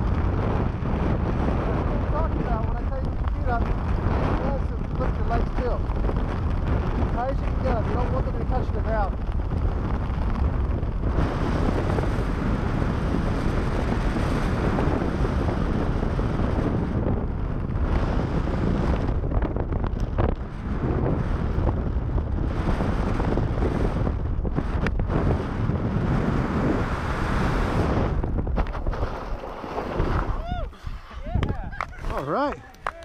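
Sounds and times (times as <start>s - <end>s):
wind buffeting microphone: 0.0s - 33.0s.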